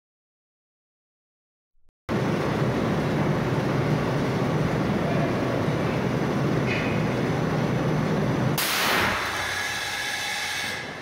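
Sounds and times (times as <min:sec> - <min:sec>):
belt conveyor machinery rumbling: 0:02.1 - 0:10.0.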